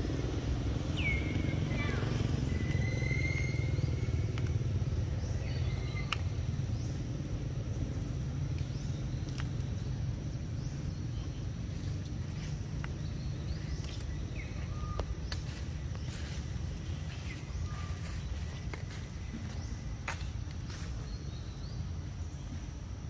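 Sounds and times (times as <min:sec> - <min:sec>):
low rumble: 0:00.0 - 0:23.0.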